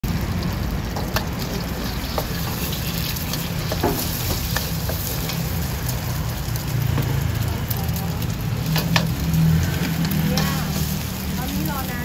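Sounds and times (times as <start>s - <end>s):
egg sizzling in a wok: 0.0s - 12.0s
gas burner rushing: 0.0s - 12.0s
metal spatulas scraping a wok: 1.0s - 5.6s, 8.8s - 11.6s.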